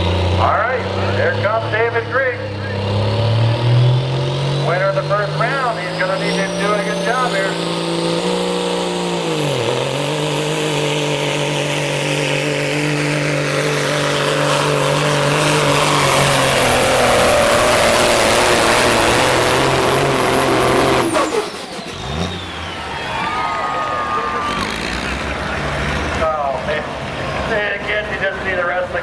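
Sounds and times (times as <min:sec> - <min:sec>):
truck diesel engine drone: 0:00.0 - 0:29.0
high engine whistle: 0:05.3 - 0:07.7, 0:20.0 - 0:25.0.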